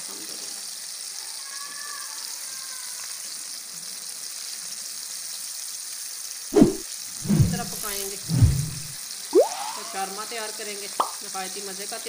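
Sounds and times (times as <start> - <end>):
chicken deep-frying in oil: 0.0 - 7.0.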